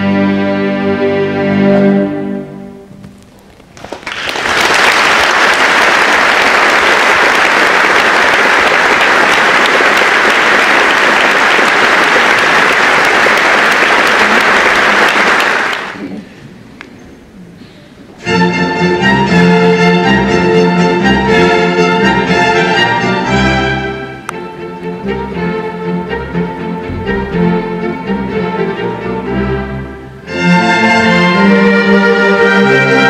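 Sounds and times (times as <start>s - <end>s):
audience applauding: 3.7s - 16.1s
string orchestra chord: 18.2s - 33.0s.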